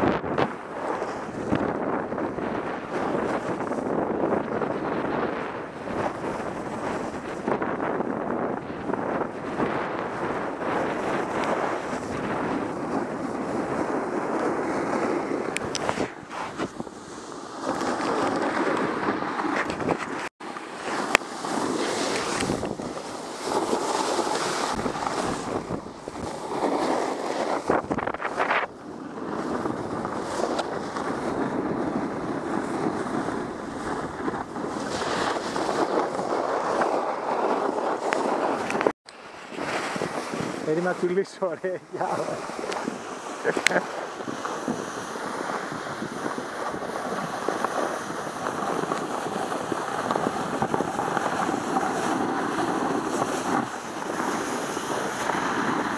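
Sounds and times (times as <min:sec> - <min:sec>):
skis scraping over snow: 0:00.0 - 0:55.9
wind rushing over microphone: 0:00.0 - 0:55.9.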